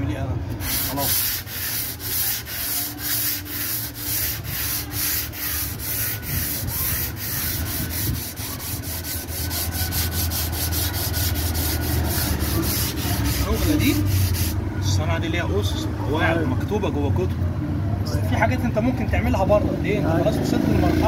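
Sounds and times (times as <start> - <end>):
sandpaper rasping on panel: 0.6 - 14.6.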